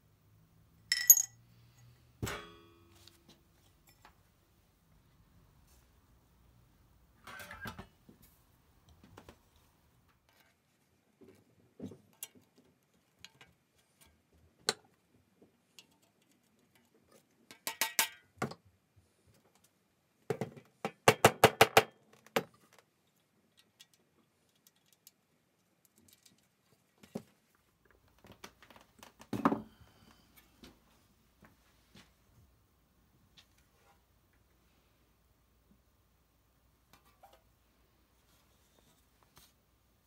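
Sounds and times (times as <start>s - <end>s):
metal parts clinking: 0.9s - 1.4s
tools clicking and tapping: 0.9s - 1.4s, 17.5s - 18.6s
soft clatter of tools: 22.1s - 30.8s.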